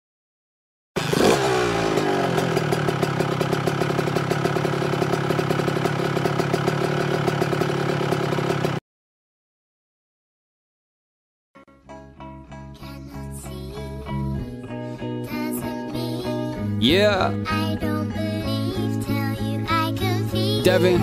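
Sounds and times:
dirt bike engine running: 1.0s - 8.8s.

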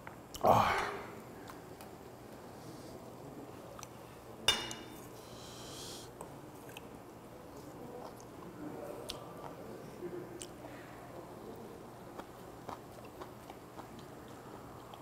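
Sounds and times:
faint chewing: 3.7s - 4.0s, 6.1s - 6.9s, 7.5s - 9.6s, 12.0s - 15.0s.

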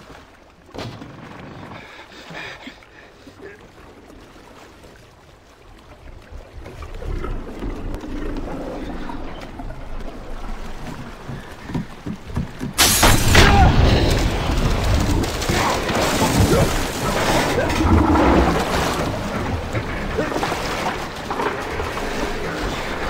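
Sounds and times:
rushing splashing water: 0.0s - 23.0s
loud crash of water bursting in: 12.8s - 21.3s.

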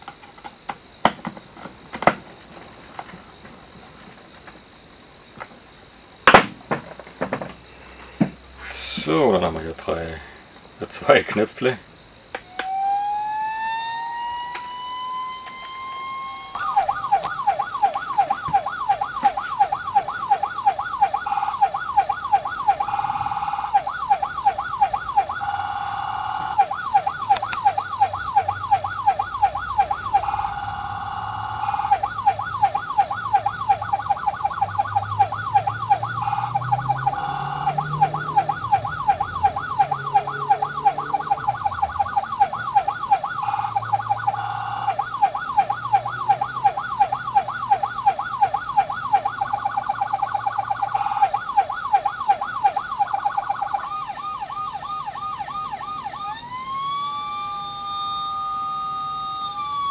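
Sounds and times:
steady siren tone: 12.3s - 59.9s
toy siren yelp sweeps: 12.4s - 59.9s.

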